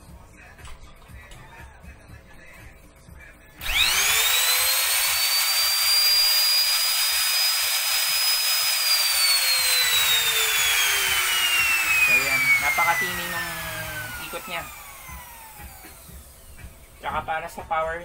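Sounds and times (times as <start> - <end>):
palm router motor whining: 3.6 - 16.8.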